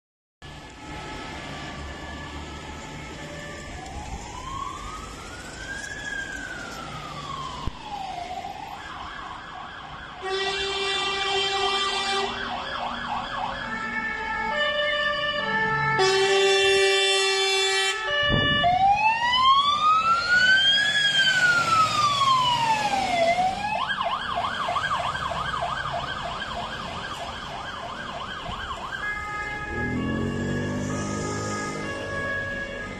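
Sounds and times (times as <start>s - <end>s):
fire engine siren wailing: 0.4s - 32.9s
horn blasts: 10.2s - 12.4s, 16.0s - 18.1s.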